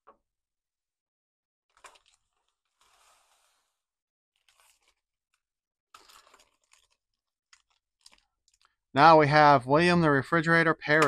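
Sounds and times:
plastic bags crinkling: 1.7 - 3.3, 4.4 - 8.8.

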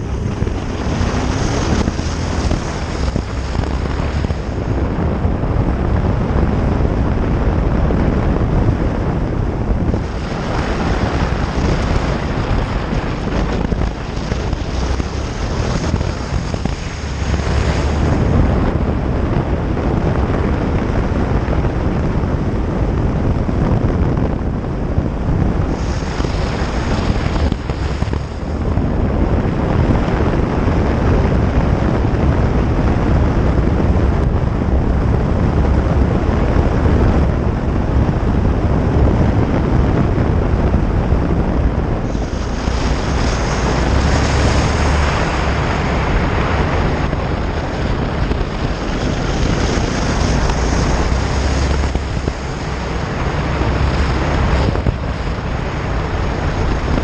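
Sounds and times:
motorcycle engine running: 0.0 - 57.0
wind rushing over microphone: 0.0 - 57.0.

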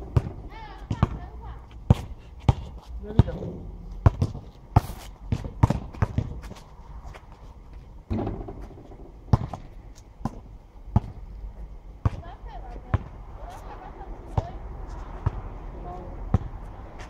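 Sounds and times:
ball hitting hoop with ring: 0.0 - 1.3
basketball bouncing on asphalt: 0.0 - 17.0.

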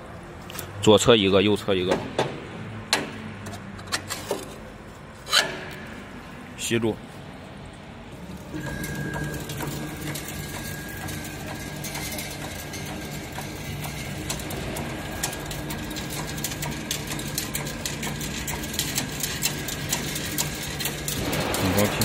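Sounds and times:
motor hum with whine: 5.2 - 22.0
machine clicking and clattering: 8.3 - 22.0.

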